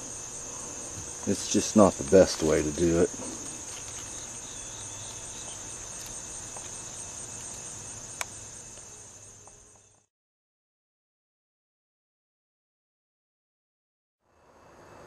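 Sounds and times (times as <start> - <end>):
crickets chirring: 0.0 - 10.1, 14.3 - 15.0.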